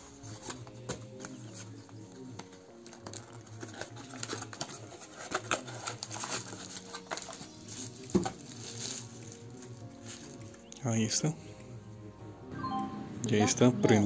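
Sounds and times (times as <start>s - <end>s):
packing wrap rustling and crinkling: 2.4s - 10.6s.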